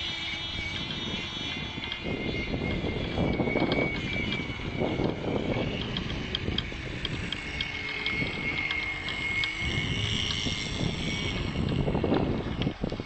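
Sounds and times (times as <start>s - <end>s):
model boat engine whining: 0.0s - 13.0s
wind noise on microphone: 0.0s - 13.0s
faint irregular ticking: 2.7s - 13.0s.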